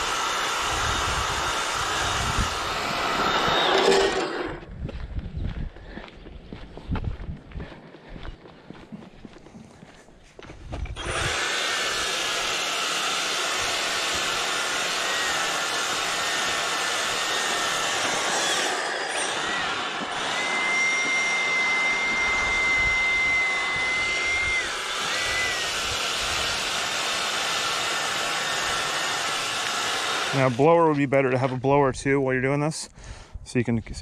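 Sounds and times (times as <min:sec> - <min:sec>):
power brush motor whining: 0:00.0 - 0:04.7, 0:10.8 - 0:31.1.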